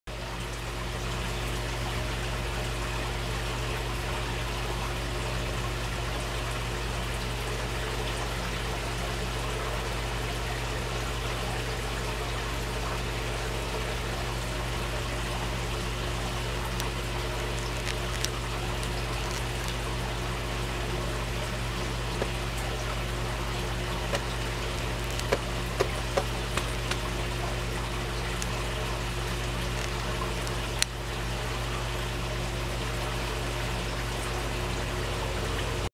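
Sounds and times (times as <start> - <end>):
low steady hum: 0.1 - 35.9
water trickling: 0.1 - 35.9
sharp ticks: 24.1 - 27.1.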